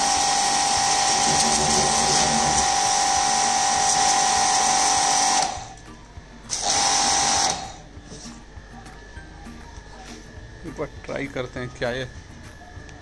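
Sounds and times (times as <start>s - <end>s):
pressure washer motor whine: 0.0s - 5.8s, 6.5s - 7.8s.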